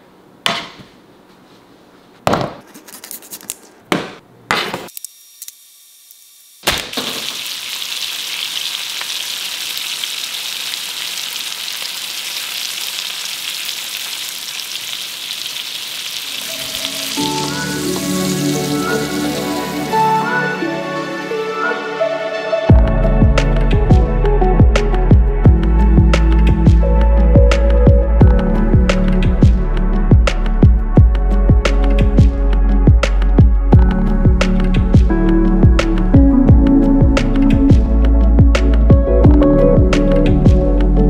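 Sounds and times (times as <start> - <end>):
fish sizzling in frying pan: 5.0 - 20.3
music: 16.3 - 41.0.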